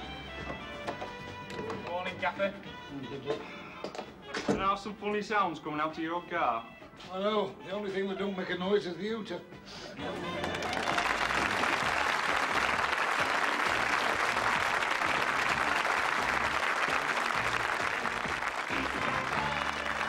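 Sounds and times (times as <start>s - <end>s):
quiet music: 0.0s - 20.0s
audience applauding: 10.0s - 20.0s.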